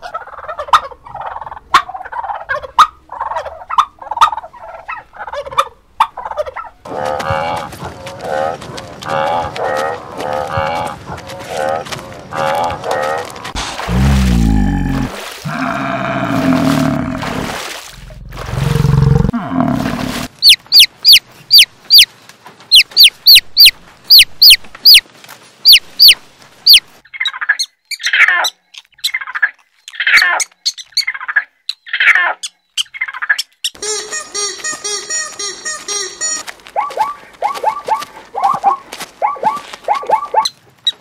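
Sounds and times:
rough low calls: 6.9 - 20.3.

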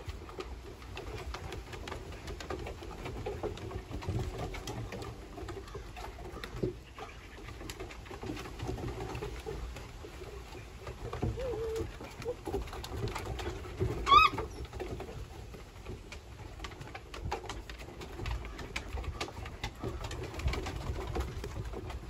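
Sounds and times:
puppy paws clicking on wooden deck: 0.0 - 22.0
puppy grumbles and whimpers: 11.1 - 12.6, 14.0 - 14.6.

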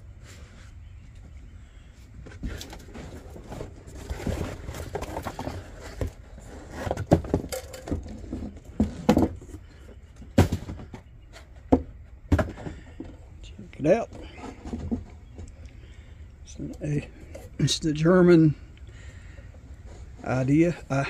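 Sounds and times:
cardboard and paper rustling: 2.2 - 13.2.

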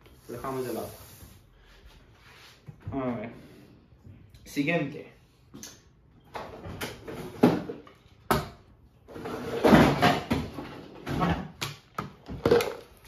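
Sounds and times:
plastic tubs clattering: 9.1 - 13.0.

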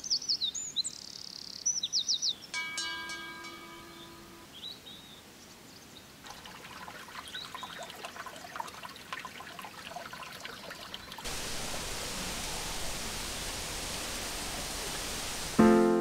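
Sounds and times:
bird chirping: 0.0 - 2.6
wind bell ringing: 2.6 - 4.6
stream trickling over rocks: 6.1 - 15.6
steady rushing hiss: 11.2 - 16.0.

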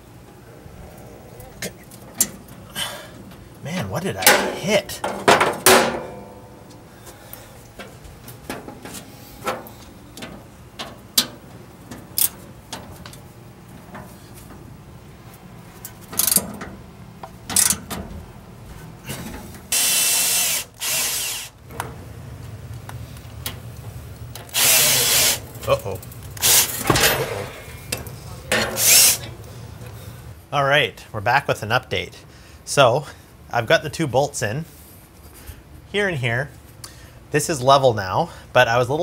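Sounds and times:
cordless power drill running: 19.7 - 21.5, 24.5 - 25.4.

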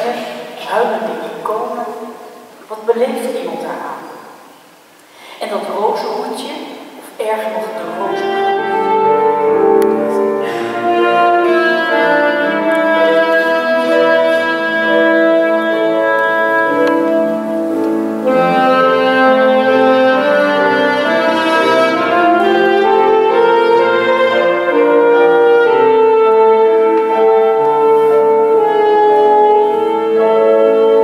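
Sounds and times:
piano accompaniment: 7.3 - 31.0
saxophone slow melody: 8.0 - 31.0.

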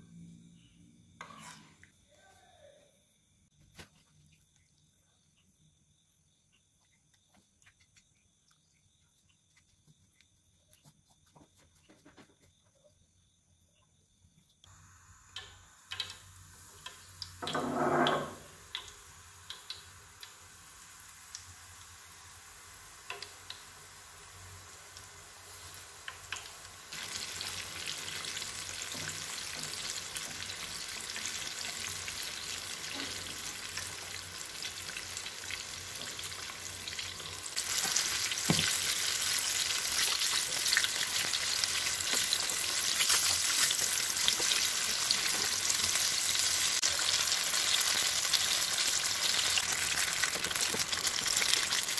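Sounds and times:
chicken deep-frying in oil: 14.7 - 51.9
oil popping: 49.6 - 51.9.

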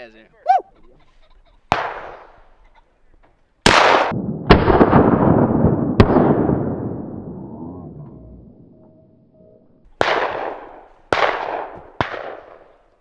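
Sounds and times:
shotgun blasts with echo: 1.7 - 2.4, 3.6 - 7.4, 10.0 - 12.8.

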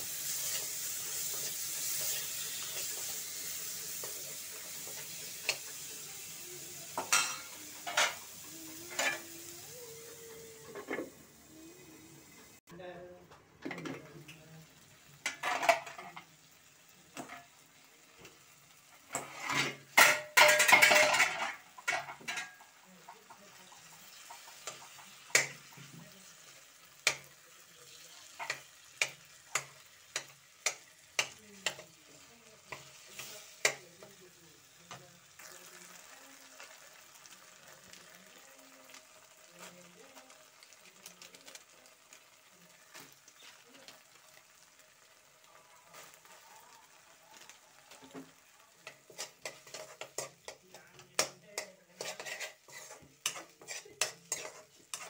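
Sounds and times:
faint sizzling: 0.0 - 55.0
metal spoon scraping a wok: 0.1 - 6.0, 19.1 - 22.5, 48.8 - 55.0
spoon tapping against pan: 21.8 - 25.9, 27.0 - 27.3, 28.4 - 31.9, 48.8 - 52.2.

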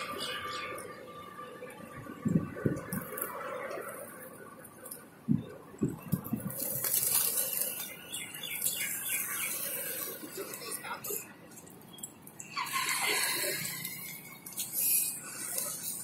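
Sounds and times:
pigeon wings flapping: 5.8 - 8.8
rustle of many wings: 5.9 - 11.2.

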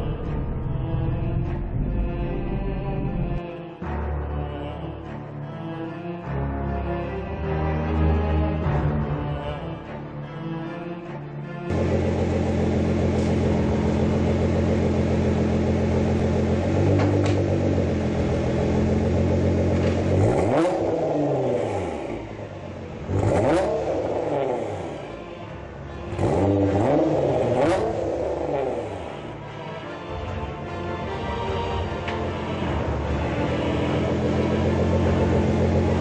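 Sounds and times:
car engine idling: 11.7 - 36.0
engine revving: 11.7 - 36.0.

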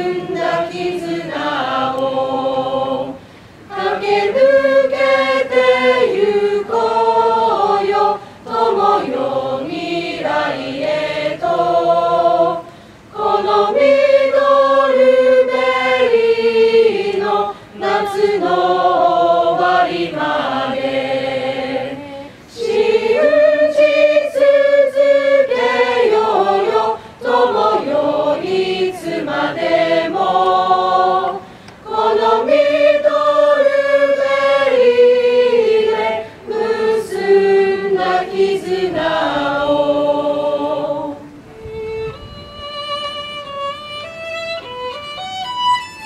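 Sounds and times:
group singing unaccompanied: 0.0 - 41.4
solo violin: 41.5 - 46.0.

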